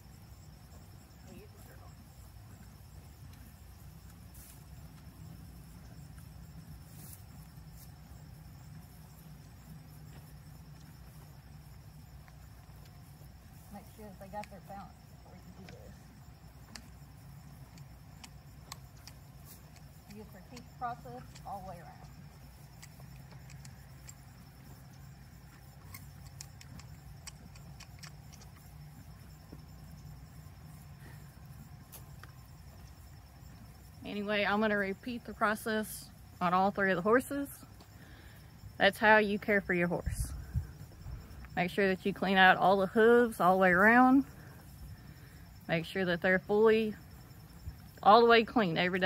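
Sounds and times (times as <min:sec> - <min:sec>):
high insect drone: 0:00.0 - 0:49.0
low constant hum: 0:00.0 - 0:49.0
hoof pick scraping and clicking: 0:02.4 - 0:33.8.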